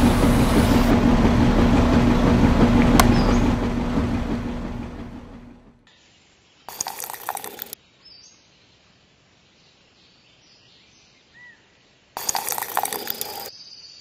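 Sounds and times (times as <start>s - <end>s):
tin toy wheelbarrow rattling on sand: 6.7s - 7.8s, 12.2s - 13.5s.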